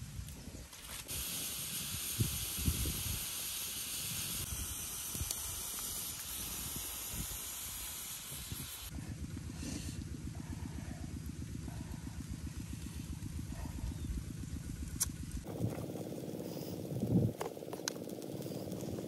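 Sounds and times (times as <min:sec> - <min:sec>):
steam hissing from bamboo tube: 0:00.8 - 0:09.0.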